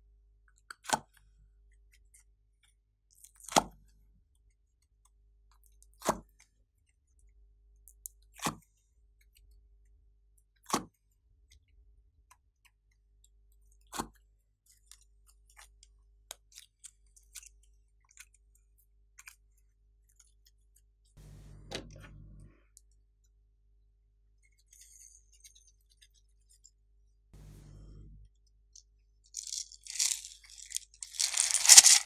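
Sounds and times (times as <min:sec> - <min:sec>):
plastic containers clicking: 0:29.4 - 0:32.0
rustle: 0:29.4 - 0:32.0.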